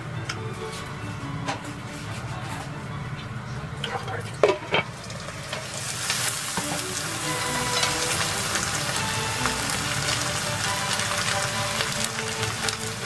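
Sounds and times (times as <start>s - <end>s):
eggs and ham frying in oil: 3.8s - 13.0s.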